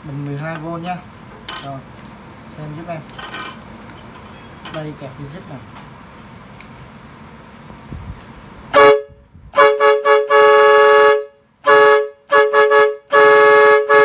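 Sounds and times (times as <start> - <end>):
two-note air horn blasts: 8.7 - 14.0.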